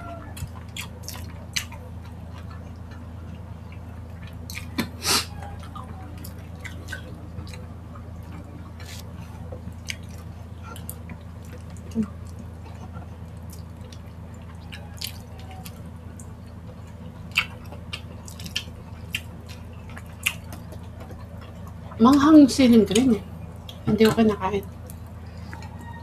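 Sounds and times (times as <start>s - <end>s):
steady low hum: 0.0s - 26.0s
wet chewing and lip smacks: 0.4s - 4.9s, 9.8s - 22.2s.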